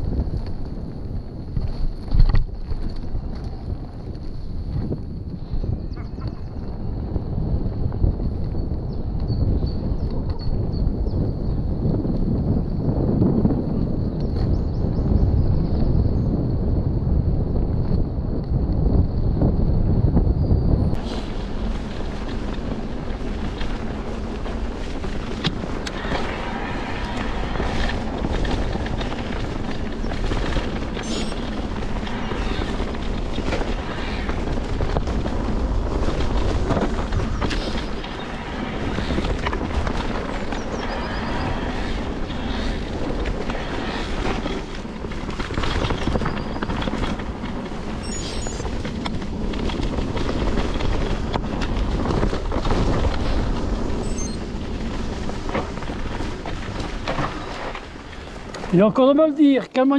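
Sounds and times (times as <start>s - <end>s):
wind buffeting microphone: 0.0s - 59.9s
tyres rolling on dirt: 21.0s - 59.9s.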